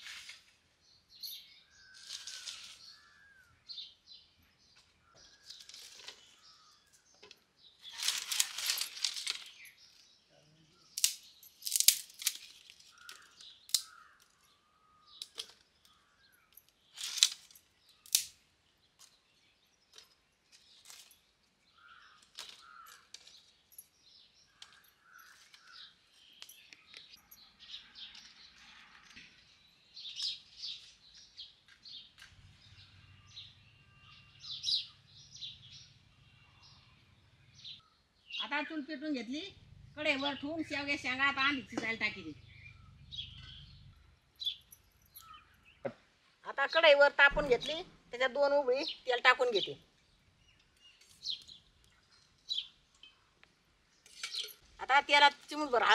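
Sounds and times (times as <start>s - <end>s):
birds chirping: 0.0s - 55.9s
dry twigs cracking: 1.9s - 3.1s, 5.4s - 6.5s, 7.8s - 10.0s, 11.0s - 14.5s, 15.2s - 18.4s, 21.8s - 23.5s.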